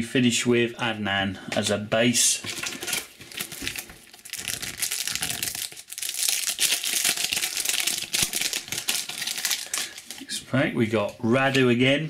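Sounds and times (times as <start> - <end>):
plastic wrapper crinkling: 2.4 - 10.4.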